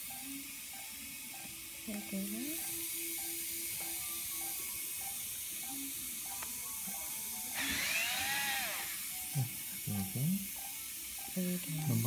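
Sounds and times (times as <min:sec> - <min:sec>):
surgical motor handpiece whirring: 0:07.5 - 0:09.2.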